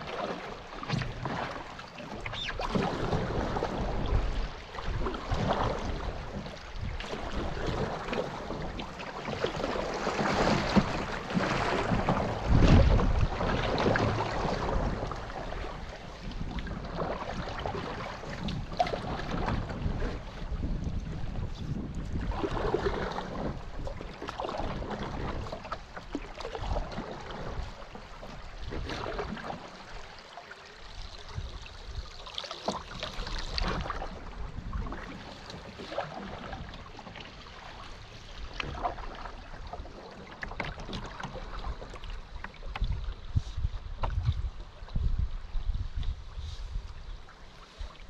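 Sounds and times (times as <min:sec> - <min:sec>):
river water rushing and splashing: 0:00.0 - 0:20.5.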